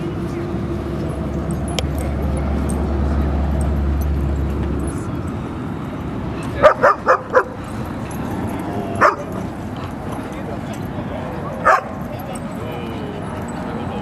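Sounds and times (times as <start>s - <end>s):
dog barking: 6.6s - 7.6s, 9.0s - 9.4s, 11.6s - 12.0s.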